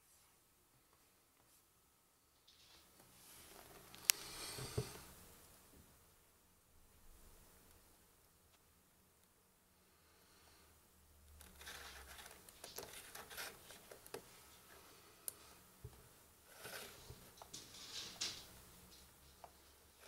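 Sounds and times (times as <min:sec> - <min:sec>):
handling rustling: 0:11.4 - 0:14.7.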